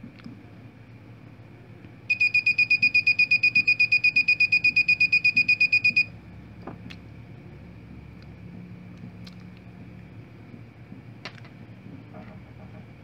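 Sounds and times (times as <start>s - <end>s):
buzzer beeping rapidly: 2.1s - 6.1s.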